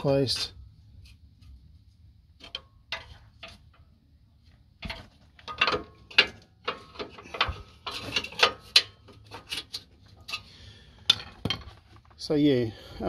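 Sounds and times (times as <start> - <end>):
pry bar metallic clicks and clunks: 2.4 - 3.8, 4.8 - 11.8.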